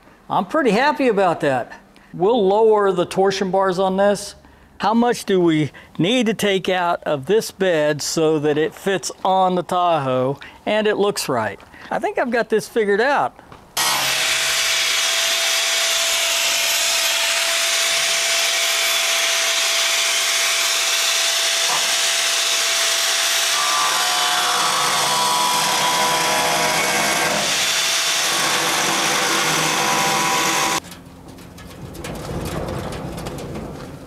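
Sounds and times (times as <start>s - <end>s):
angle grinder cutting sheet steel: 13.8s - 30.8s.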